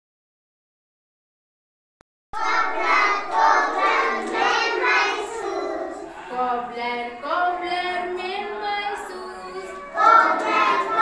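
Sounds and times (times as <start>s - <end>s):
young children singing: 2.4s - 11.0s.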